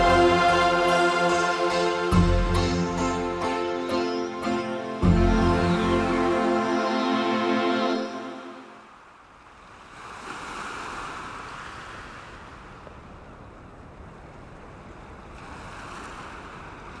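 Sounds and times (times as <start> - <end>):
music: 0.0 - 8.8
waves and wind over water: 4.6 - 17.0.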